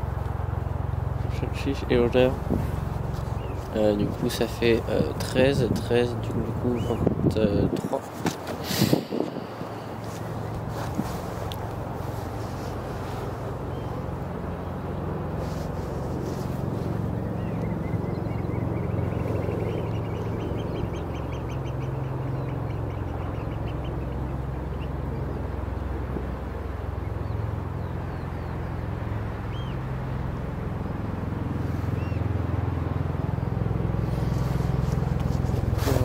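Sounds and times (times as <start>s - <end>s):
steady low rumble: 0.0s - 36.0s
birds piping calls: 1.2s - 7.2s, 8.5s - 25.4s, 29.5s - 29.8s, 31.6s - 32.4s.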